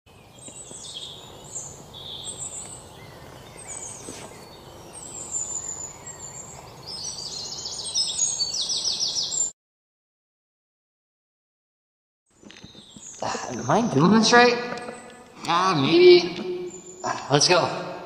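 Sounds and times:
low outdoor hiss: 0.1 - 9.4, 12.8 - 18.0
wild birds chirping: 0.1 - 9.5, 12.3 - 18.0.

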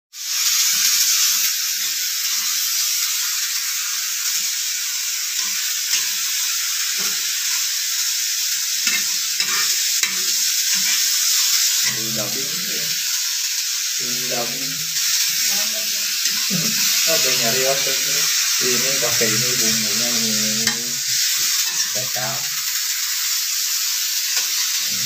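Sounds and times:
vegetables sizzling in hot oil: 0.1 - 25.0
metal spatula scraping wok: 8.8 - 11.1, 18.4 - 22.1.

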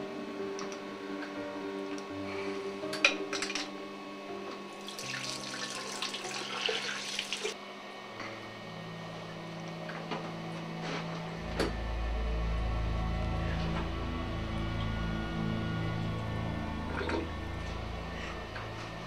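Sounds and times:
water running from a tap: 4.8 - 7.6.

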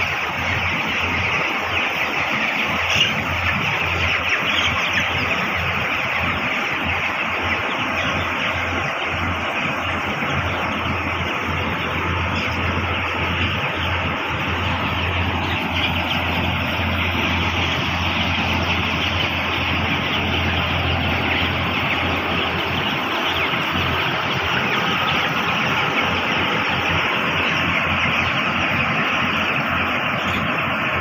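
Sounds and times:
chicks peeping: 0.0 - 31.0.

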